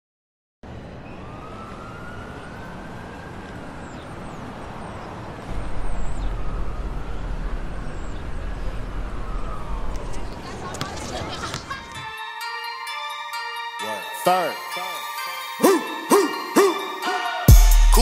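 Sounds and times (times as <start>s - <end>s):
siren-like wailing tone: 1.0s - 10.4s
heavy deep bass: 17.5s - 18.0s.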